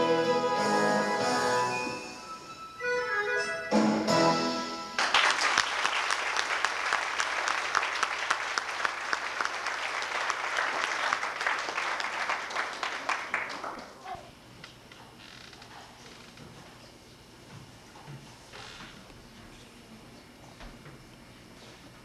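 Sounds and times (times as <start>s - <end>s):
music final chord: 0.0s - 5.0s
audience clapping: 5.0s - 14.1s.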